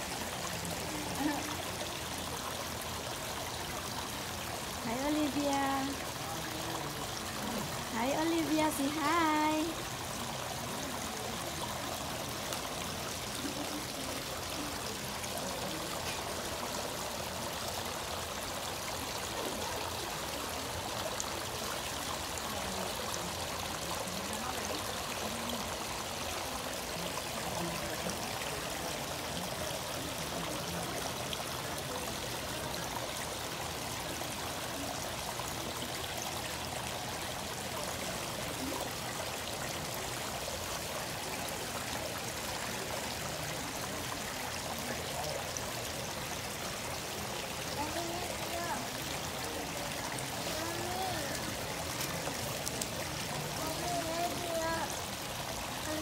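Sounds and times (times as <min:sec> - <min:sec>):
small waterfall trickling into pond: 0:00.0 - 0:56.0.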